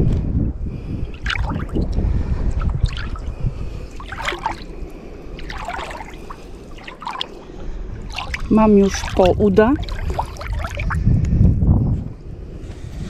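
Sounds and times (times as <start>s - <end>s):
wind rumble on microphone: 0.0s - 13.0s
water sloshing around wading legs: 1.0s - 11.0s
splashing steps in water: 1.1s - 1.9s, 2.6s - 11.0s.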